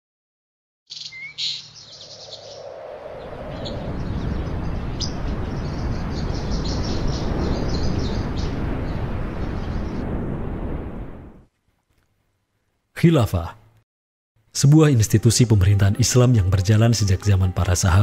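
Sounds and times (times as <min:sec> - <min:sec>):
birds chirping: 0:00.9 - 0:10.0
low rumbling noise: 0:02.1 - 0:11.5.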